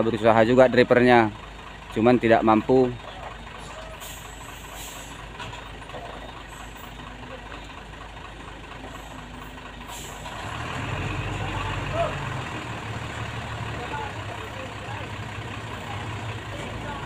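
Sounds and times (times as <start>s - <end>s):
diesel truck engine idling: 0.0s - 17.0s.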